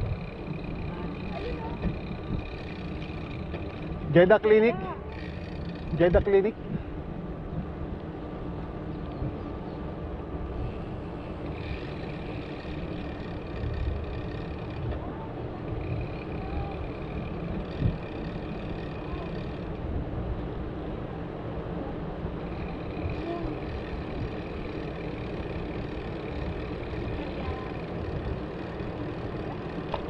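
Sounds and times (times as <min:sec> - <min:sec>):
wind buffeting: 0:00.0 - 0:21.1, 0:21.7 - 0:30.0
road traffic rumble: 0:00.0 - 0:30.0
steady hum: 0:00.0 - 0:30.0.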